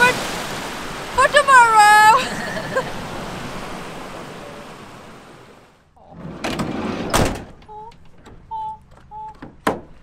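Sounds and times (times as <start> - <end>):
surf washing over rocks: 0.0 - 5.8
van sliding door slamming shut: 6.1 - 7.6.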